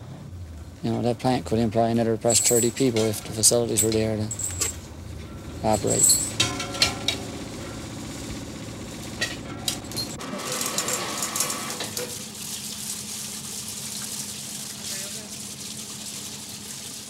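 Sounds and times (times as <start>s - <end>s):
steady hum: 0.0s - 10.4s
boat engine running: 0.0s - 11.8s
metal clanks: 2.2s - 11.0s.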